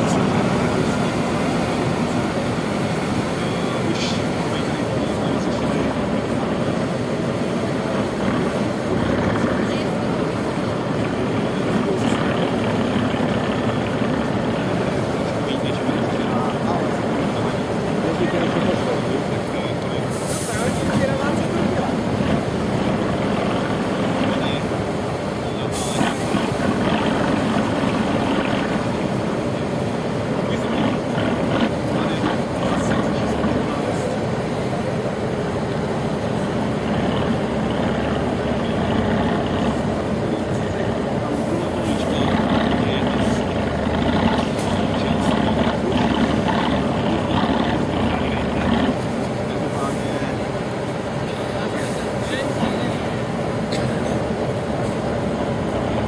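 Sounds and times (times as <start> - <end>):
diesel truck engine rumbling: 0.0 - 56.0
hiss burst: 20.1 - 20.9.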